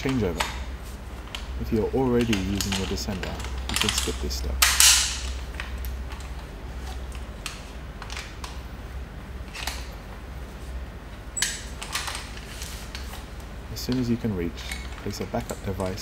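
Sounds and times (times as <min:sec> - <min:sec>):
metal hardware clicking: 0:00.0 - 0:06.4
low steady hum: 0:00.0 - 0:16.0.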